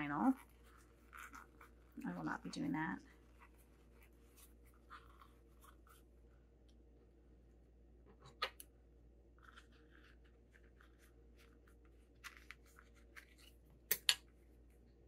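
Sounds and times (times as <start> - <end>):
vinyl fabric crinkling: 0.0 - 6.4, 9.3 - 13.6.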